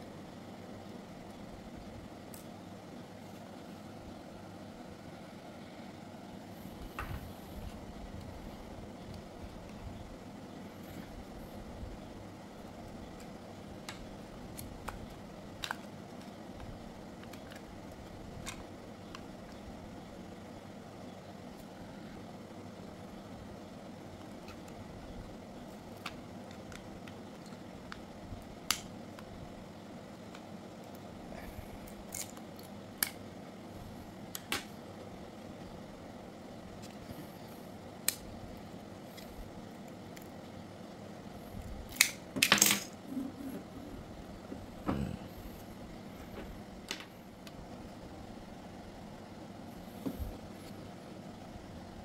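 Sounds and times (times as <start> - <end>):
small clipper parts clicking: 31.9 - 33.2.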